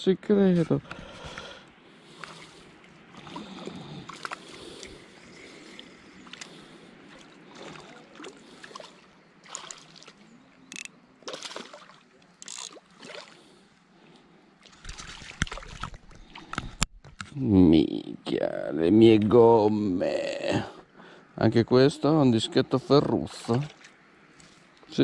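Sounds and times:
fishing reel clicking: 10.7 - 10.9.

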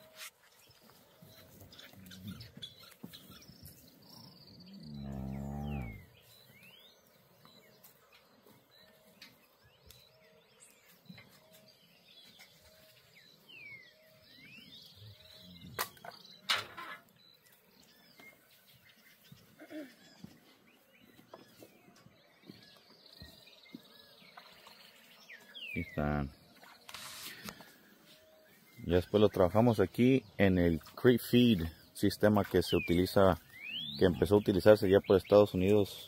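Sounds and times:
birds chirping: 0.0 - 36.0
cow mooing: 4.6 - 6.1.

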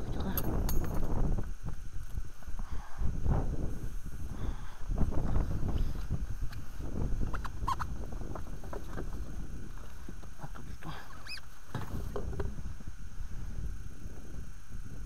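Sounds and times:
knocks and rustles of gear: 0.4 - 1.1
short high squeaks: 11.2 - 11.5.

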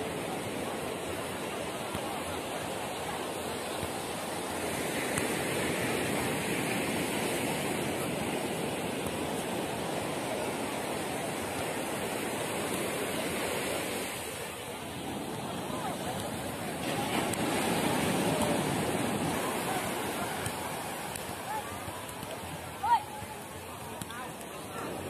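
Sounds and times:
surf breaking on beach: 3.2 - 23.0.

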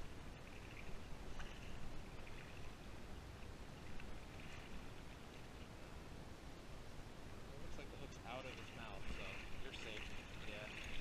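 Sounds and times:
water lapping: 0.0 - 11.0.

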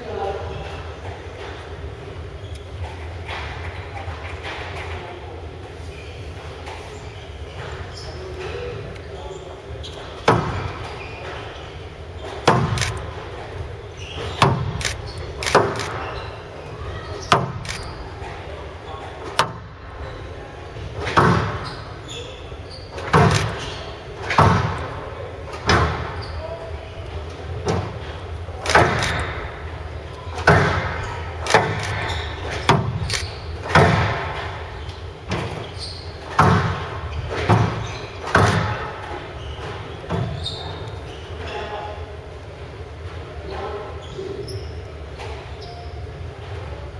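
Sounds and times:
ball hitting court walls: 9.9 - 11.6, 12.2 - 16.3, 17.2 - 17.6, 20.9 - 21.9, 22.9 - 26.2, 27.6 - 29.6, 30.4 - 40.8
squash racket strikes: 12.2 - 13.2, 14.2 - 16.2, 21.0 - 21.6, 24.2 - 26.2, 28.6 - 29.5, 30.4 - 34.7, 36.3 - 39.1
squash racket striking ball: 12.4 - 12.8, 36.3 - 38.9.

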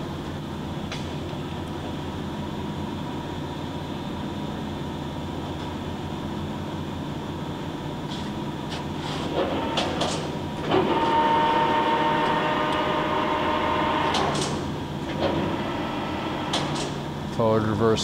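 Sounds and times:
lathe motor humming: 9.4 - 17.4.

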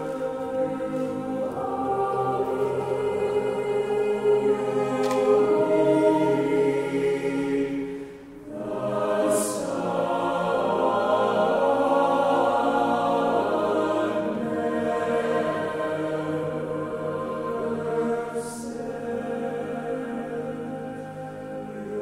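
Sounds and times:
choir singing a cappella: 0.0 - 22.0.

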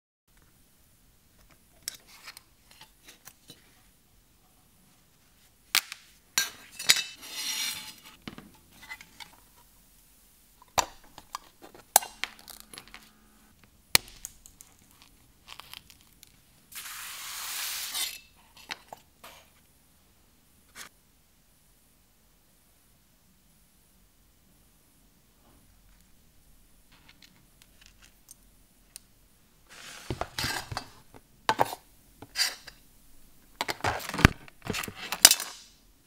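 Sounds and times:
metal scraping: 6.4 - 9.4.

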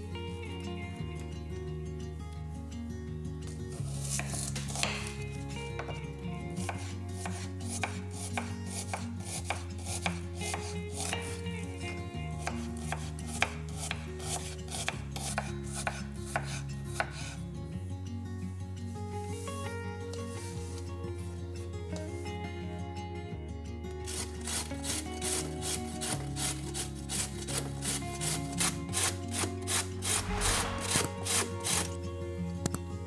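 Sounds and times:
background music: 0.0 - 33.0
knife chopping on wooden board: 4.1 - 5.2, 6.7 - 11.3, 12.4 - 17.3.

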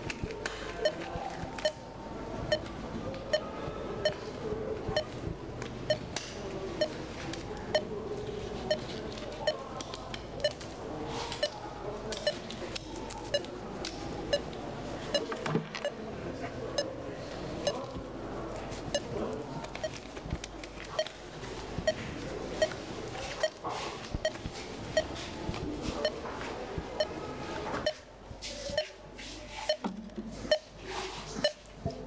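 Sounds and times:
heart-rate monitor beeping: 0.8 - 1.8, 2.4 - 4.3, 4.9 - 6.1, 7.7 - 7.9, 8.7 - 9.7, 10.4 - 10.7, 11.4 - 12.5, 13.2 - 13.5, 14.3 - 16.0, 18.9 - 21.1, 21.8 - 25.2, 25.9 - 26.2, 26.9 - 27.2, 27.8 - 28.1, 28.7 - 29.0, 29.6 - 30.7, 31.4 - 31.7.

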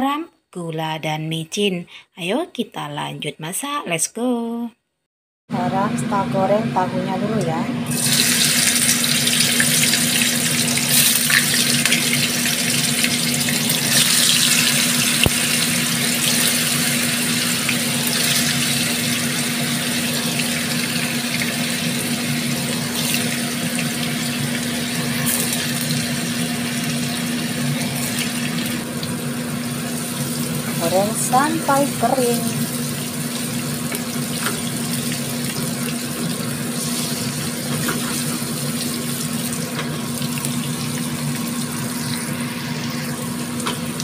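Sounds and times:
tofu sizzling in hot oil: 7.9 - 22.1.

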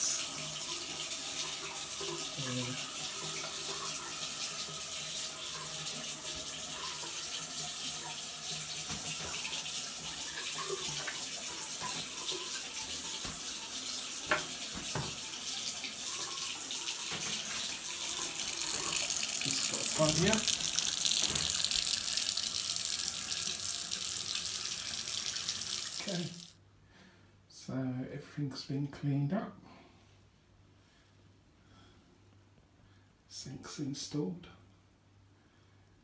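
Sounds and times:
tap water running into sink: 0.0 - 26.6.

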